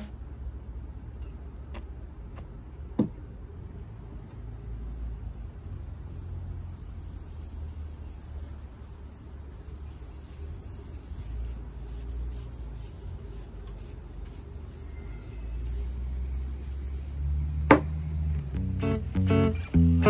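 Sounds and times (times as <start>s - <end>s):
cloth rubbing wood: 6.1s - 17.2s
guitar music: 18.4s - 20.0s.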